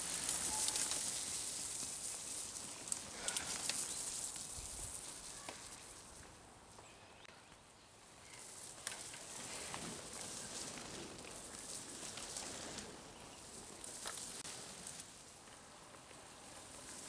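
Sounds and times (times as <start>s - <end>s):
bike clicks: 0.0s - 6.3s, 13.5s - 17.0s
bike tyres hissing on wet dirt: 0.0s - 6.8s, 7.9s - 17.0s.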